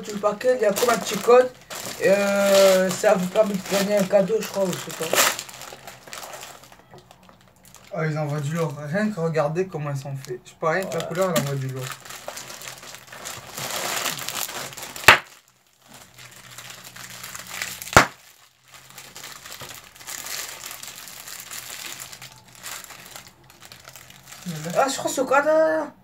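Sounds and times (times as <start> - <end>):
plastic wrappers crinkling and tearing: 0.0 - 9.2, 10.1 - 25.4.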